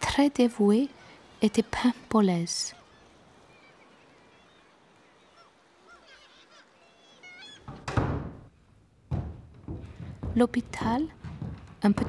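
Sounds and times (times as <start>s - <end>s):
faint birds chirping: 0.5s - 8.7s.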